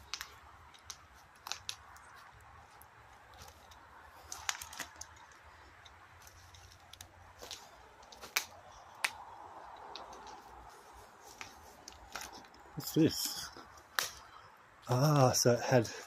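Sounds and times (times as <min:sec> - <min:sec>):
footsteps crunching through dry leaves: 0:10.0 - 0:13.7.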